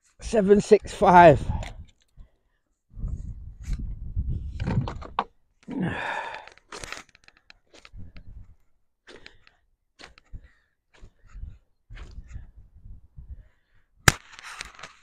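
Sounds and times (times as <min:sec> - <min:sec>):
person sighing: 0:05.7 - 0:06.6.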